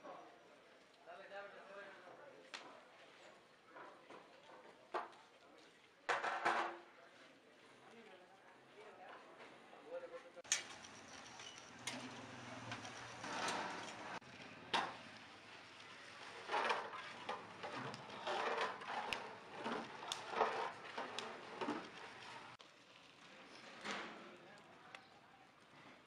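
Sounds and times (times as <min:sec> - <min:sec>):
wooden paddle stirring in pot: 0:12.8 - 0:22.8.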